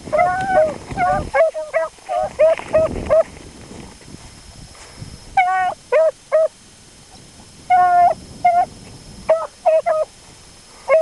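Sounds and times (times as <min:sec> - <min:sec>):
dog baying and barking: 0:00.1 - 0:03.3, 0:05.4 - 0:06.5, 0:07.7 - 0:08.7, 0:09.3 - 0:10.1
dog yelp: 0:00.1 - 0:03.3, 0:05.4 - 0:06.5, 0:07.7 - 0:08.7, 0:09.3 - 0:10.1.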